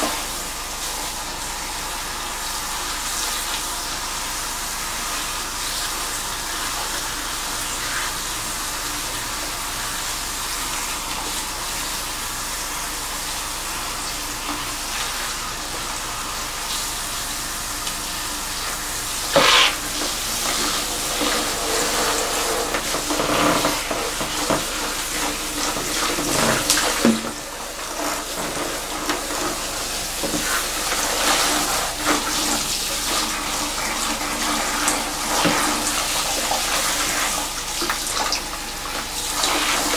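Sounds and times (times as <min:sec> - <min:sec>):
shower sprayer hissing: 0:00.0 - 0:39.9
loud water burst: 0:18.5 - 0:24.2.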